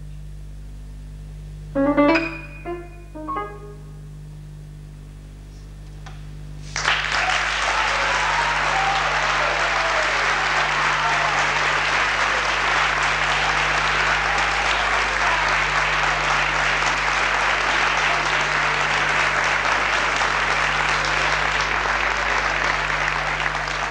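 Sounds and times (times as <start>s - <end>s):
low electrical hum: 0.0s - 23.9s
piano notes: 1.7s - 4.3s
audience applause: 6.6s - 23.9s.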